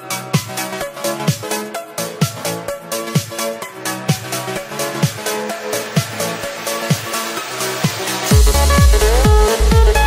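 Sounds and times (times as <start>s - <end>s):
electronic dance music: 0.0s - 10.0s
kick drum beat: 3.1s - 3.4s, 4.1s - 4.3s, 7.8s - 10.0s
heavy bass line: 8.3s - 10.0s.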